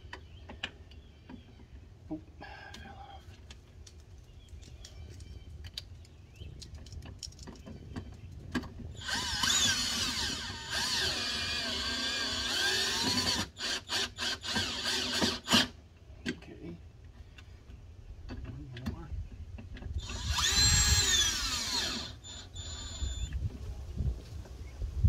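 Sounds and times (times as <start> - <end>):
cordless drill motor: 9.0 - 15.8, 20.0 - 23.4.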